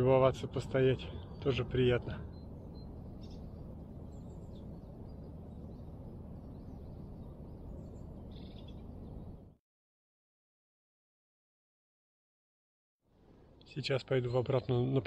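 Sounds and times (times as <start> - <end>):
low outdoor rumble: 0.0 - 9.6
faint bird chirps: 0.4 - 9.6.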